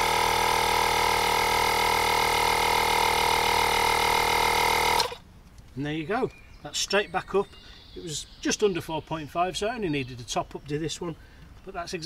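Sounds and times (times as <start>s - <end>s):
tyre compressor running: 0.0s - 5.2s.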